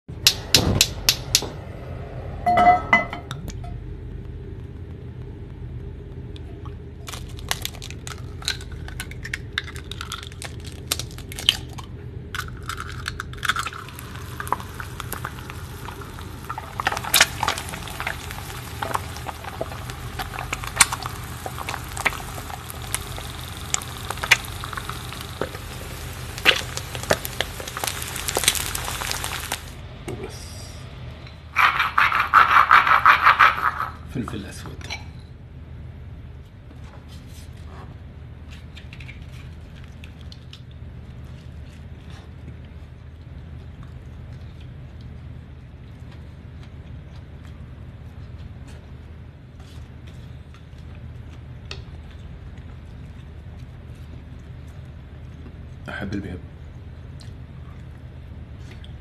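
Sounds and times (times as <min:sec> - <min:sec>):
low hum: 0:00.1 - 0:34.1
eggs frying in oil: 0:06.2 - 0:29.8.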